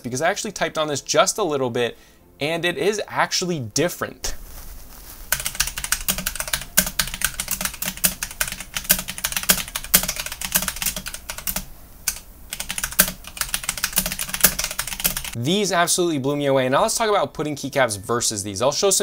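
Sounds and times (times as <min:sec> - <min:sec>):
mechanical keyboard typing: 0:05.3 - 0:15.4.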